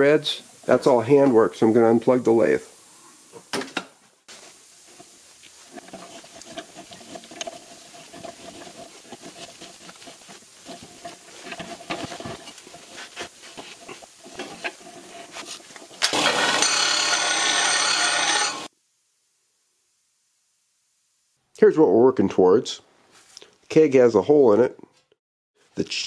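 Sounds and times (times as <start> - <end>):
disc sander grinding metal: 4.9 - 18.7.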